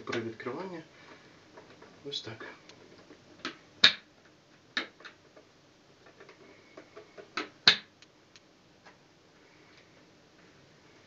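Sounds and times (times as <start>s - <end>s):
plastic clicks and knocks: 2.7s - 8.1s.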